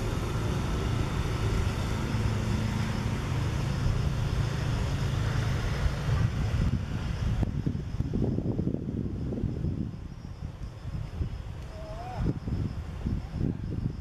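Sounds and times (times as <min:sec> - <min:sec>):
vehicle engine running: 0:00.0 - 0:09.8.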